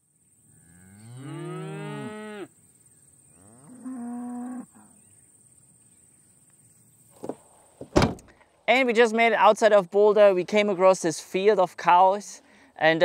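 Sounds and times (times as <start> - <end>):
cicadas buzzing: 0.0 - 8.2
cattle mooing: 0.6 - 2.5, 3.4 - 4.9.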